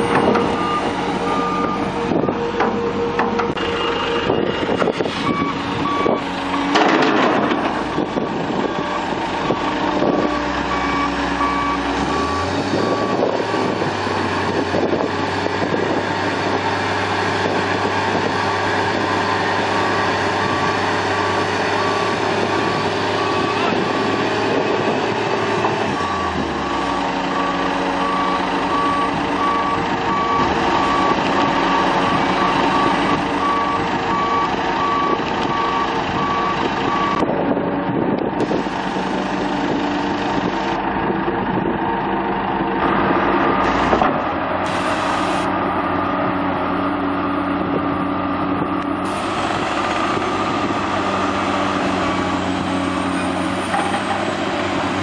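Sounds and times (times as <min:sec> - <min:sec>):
heavy diesel engines running: 0:00.0 - 0:55.0
backup alarm beeping: 0:00.2 - 0:04.6.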